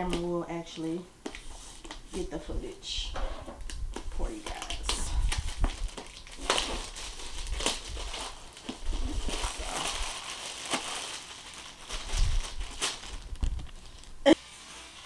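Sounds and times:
plastic wrapping crinkling: 0:03.7 - 0:15.0.

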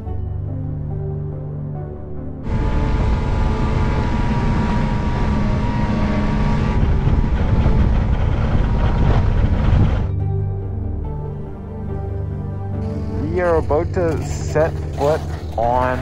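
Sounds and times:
snowmobile engine at speed: 0:02.4 - 0:10.1, 0:13.0 - 0:16.0
track noise: 0:02.4 - 0:10.1, 0:12.8 - 0:16.0
wind noise: 0:02.5 - 0:10.1.

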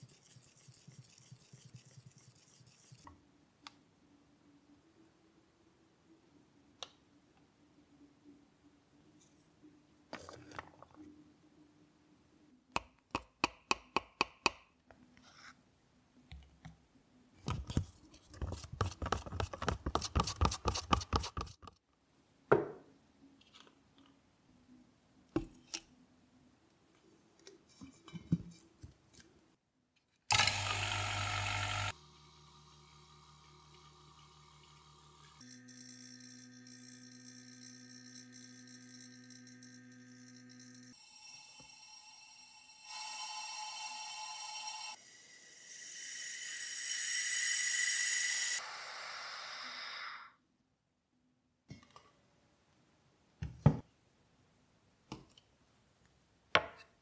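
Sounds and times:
stick scraping plastic cup: 0:17.6 - 0:21.6.

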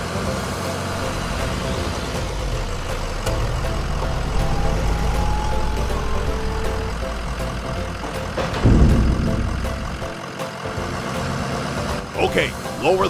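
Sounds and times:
whining tones: 0:00.9 - 0:10.5
cartoon engine rumble: 0:00.9 - 0:11.2
loud thud: 0:07.2 - 0:10.4.

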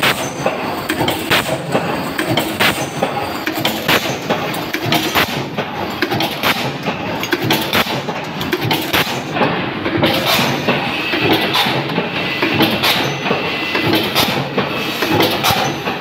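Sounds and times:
power press clanking: 0:00.0 - 0:16.0
steady mechanical din: 0:00.0 - 0:16.0.

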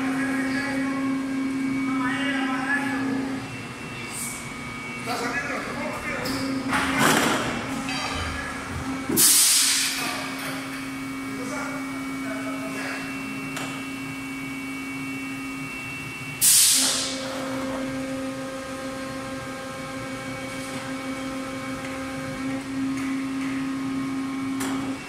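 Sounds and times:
machine humming: 0:00.0 - 0:25.0
loud burst of hiss: 0:09.2 - 0:10.0, 0:16.4 - 0:17.2.

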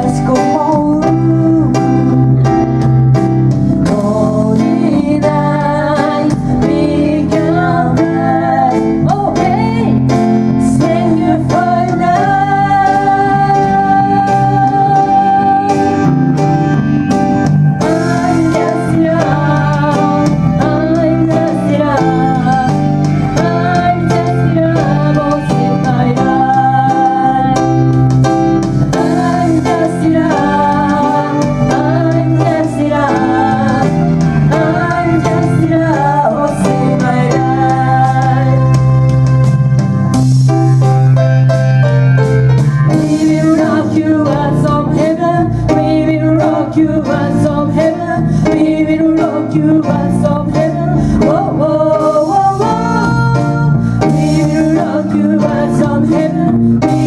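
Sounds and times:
electric bass: 0:00.0 - 0:57.0.

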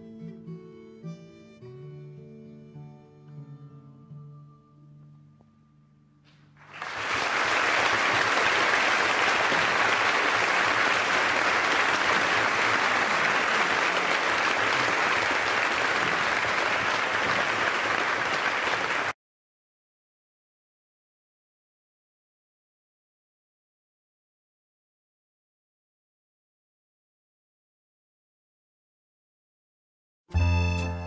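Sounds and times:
audience applause: 0:06.6 - 0:19.2.

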